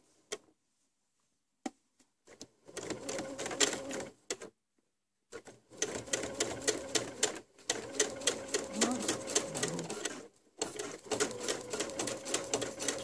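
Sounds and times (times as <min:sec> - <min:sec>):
sewing machine stitching: 0:02.3 - 0:04.5, 0:05.3 - 0:13.0.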